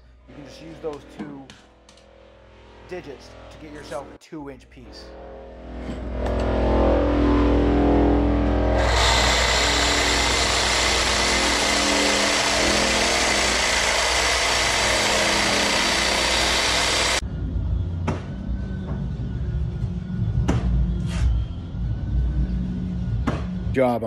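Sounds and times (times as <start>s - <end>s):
reciprocating saw cutting pipe: 8.4s - 17.2s.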